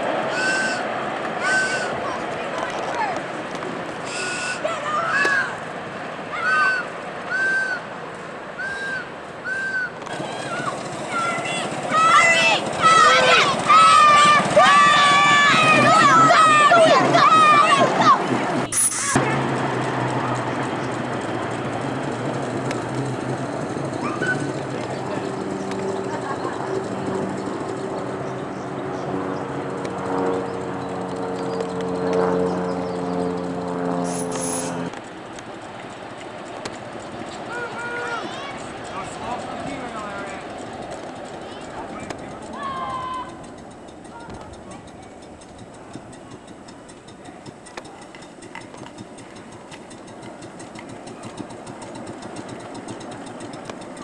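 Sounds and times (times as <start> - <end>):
steam locomotive chuffing: 0.0 - 2.4, 10.1 - 28.8, 32.8 - 54.0
steam locomotive hum: 0.0 - 2.4, 7.2 - 31.9
rhythmic clicking: 10.6 - 24.0, 34.4 - 54.0.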